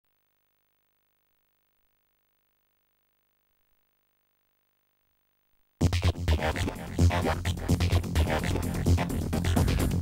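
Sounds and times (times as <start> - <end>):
faint recording hum and hiss: 0.0 - 5.8.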